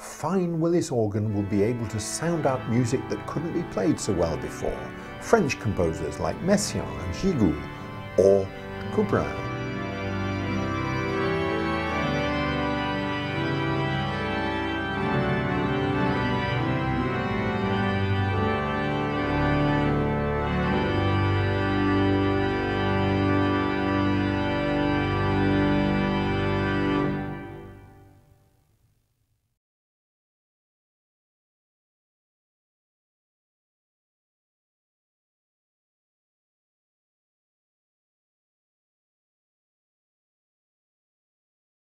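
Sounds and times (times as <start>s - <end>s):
pipe organ playing chords: 0.2s - 28.3s.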